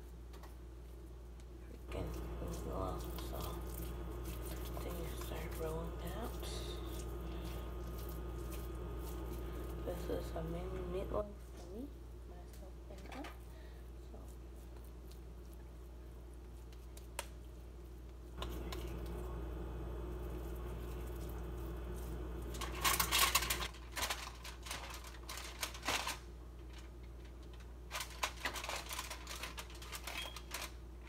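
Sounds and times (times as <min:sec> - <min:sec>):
steady hum: 0:01.7 - 0:11.4, 0:18.3 - 0:23.7
aluminium foil crinkling: 0:01.8 - 0:11.2, 0:18.3 - 0:31.0.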